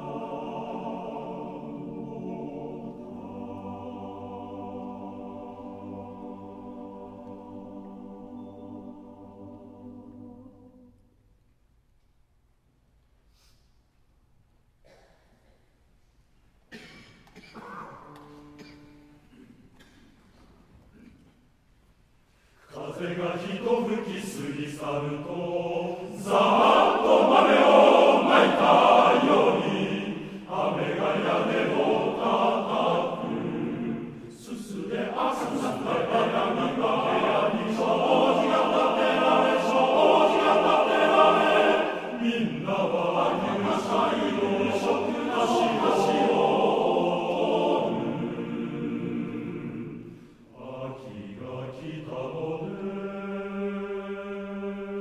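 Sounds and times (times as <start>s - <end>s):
men's choir singing in harmony: 0.0s - 11.0s, 22.7s - 55.0s.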